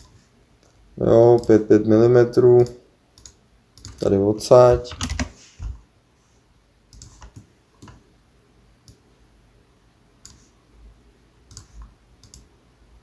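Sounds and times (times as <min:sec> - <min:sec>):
computer mouse and keyboard clicks: 0:02.6 - 0:04.1, 0:06.9 - 0:08.0, 0:10.2 - 0:10.5, 0:11.5 - 0:12.5.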